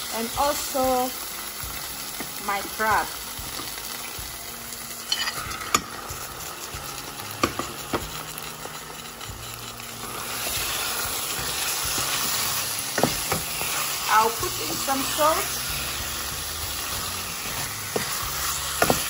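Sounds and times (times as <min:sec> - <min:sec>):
stew frying in a pan: 0:00.0 - 0:19.0
spoon knocking in a pan: 0:07.4 - 0:08.1, 0:12.9 - 0:13.5, 0:17.9 - 0:19.0.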